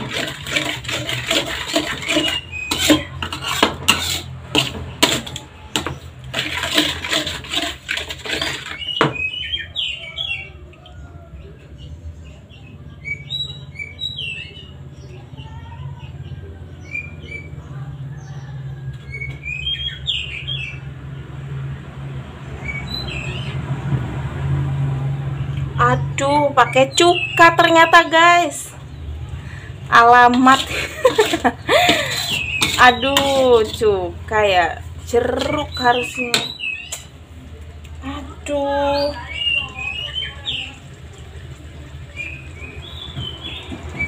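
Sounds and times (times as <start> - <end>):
metal spatula scraping a wok: 0.0 - 9.2, 30.0 - 37.1
birds chirping: 1.0 - 3.2, 8.3 - 21.0, 22.4 - 23.7, 25.4 - 44.0.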